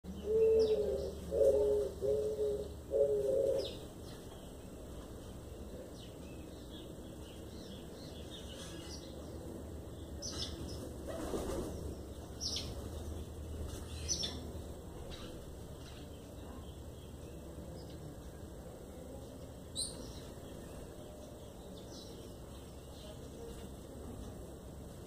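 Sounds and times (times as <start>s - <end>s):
wings fluttering: 10.8s - 11.9s.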